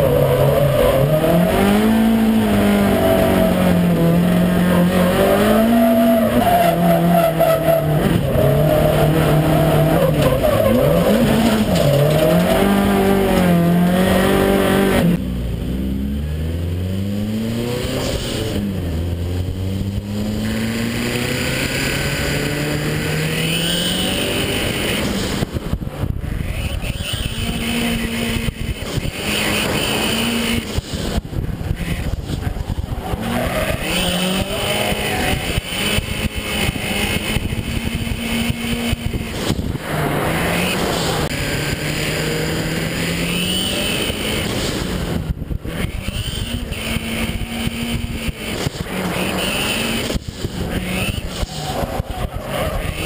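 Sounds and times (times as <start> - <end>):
tires squealing: 0.0 - 15.0, 26.2 - 53.0
car engine revving hard: 0.0 - 15.2, 16.4 - 25.4, 26.4 - 53.0.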